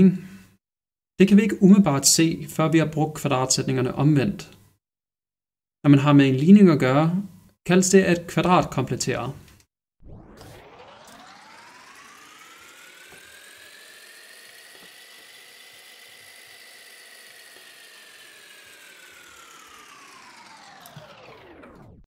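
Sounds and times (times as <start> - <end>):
electronic whirring drone: 10.0 - 22.0.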